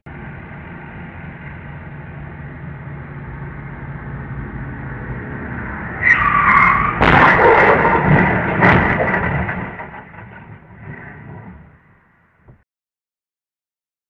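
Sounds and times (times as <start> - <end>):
steady vehicle hum: 0.0 - 12.6
vehicles crashing: 0.1 - 12.4
tyres screeching: 5.9 - 9.8
crunching impact: 6.6 - 11.8.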